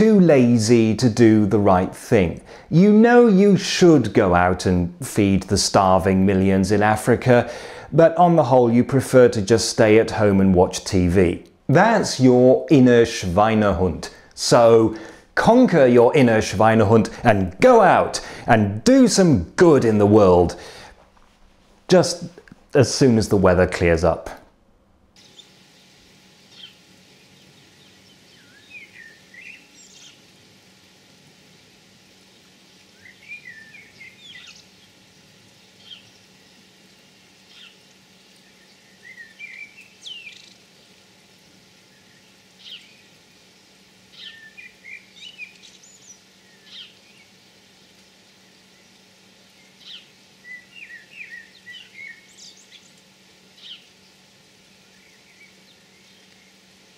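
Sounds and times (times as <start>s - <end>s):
faint steady hiss: 0.0s - 56.9s
birds chirping: 25.2s - 30.4s, 32.2s - 56.8s.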